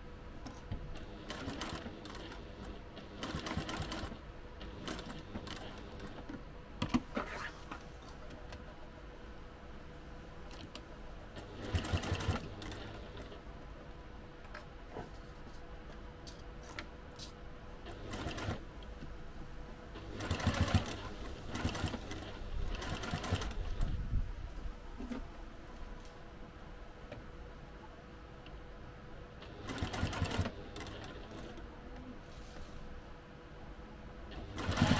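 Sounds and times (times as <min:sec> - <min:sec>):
sewing machine stitching: 0:01.0 - 0:06.2, 0:11.4 - 0:13.4, 0:17.9 - 0:18.6, 0:20.0 - 0:23.9, 0:29.4 - 0:31.6, 0:34.3 - 0:34.9.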